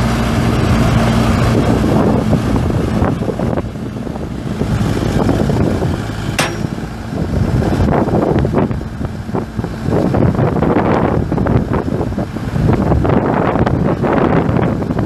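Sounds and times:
diesel engine running: 0.0s - 15.0s
wind buffeting microphone: 0.2s - 15.0s
sharp knocks: 6.4s - 7.0s.

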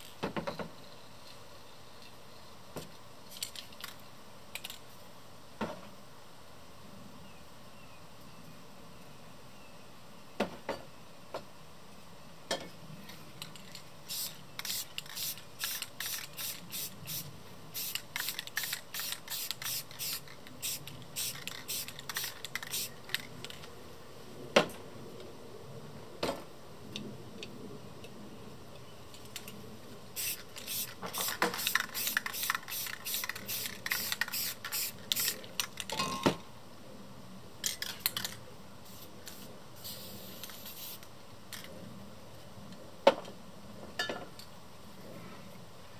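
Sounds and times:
spray paint can bursts: 14.1s - 23.0s, 30.2s - 35.5s, 38.9s - 41.1s.

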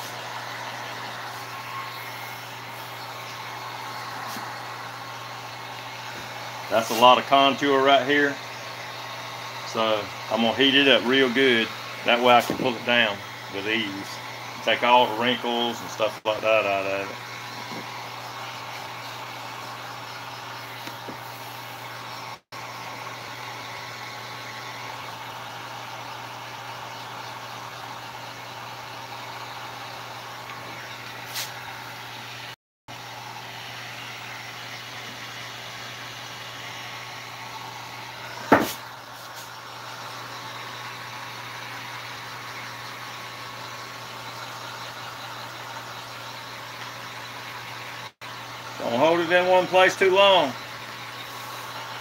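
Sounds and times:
heat gun fan blowing: 0.0s - 45.8s, 48.4s - 52.0s
sharp knock: 38.5s - 38.8s.

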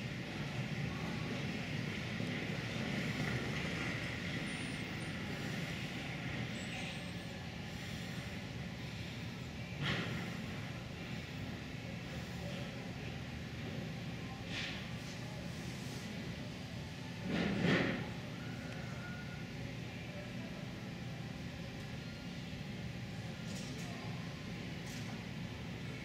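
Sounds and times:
ice arena background noise: 0.0s - 26.0s.

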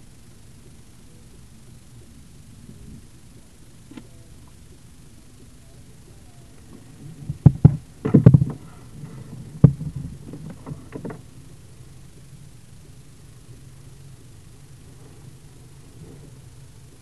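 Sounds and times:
knocks and thumps: 7.3s - 8.6s.

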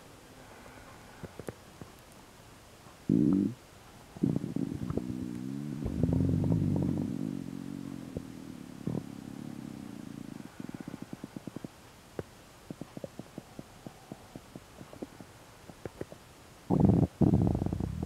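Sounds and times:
stomach growling: 3.1s - 18.0s.

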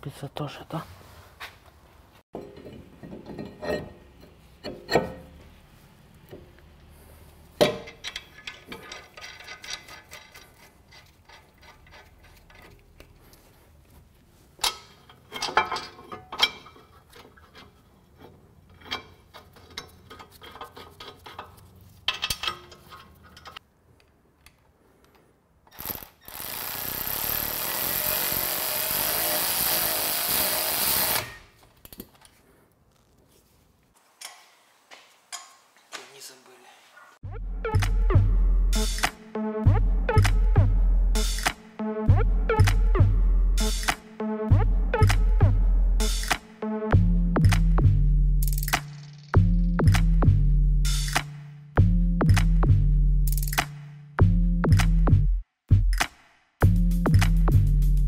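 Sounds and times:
metal tools clinking: 2.4s - 5.4s, 7.6s - 13.4s, 14.6s - 23.6s
power tool running: 25.9s - 31.4s.

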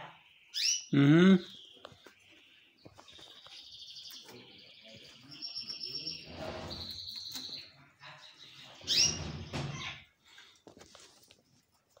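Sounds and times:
canaries singing: 0.0s - 10.6s.

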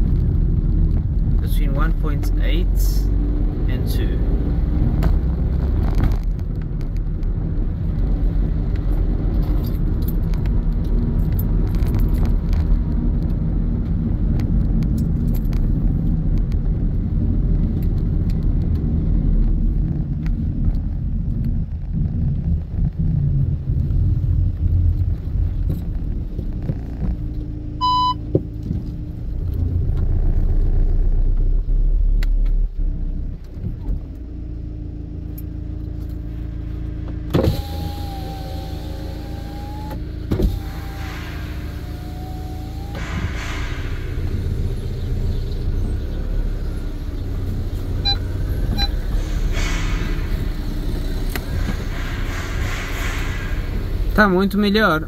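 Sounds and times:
van engine and road rumble: 0.0s - 55.0s
short beep: 27.8s - 28.2s, 48.0s - 49.0s
wavering whine: 35.4s - 54.8s.

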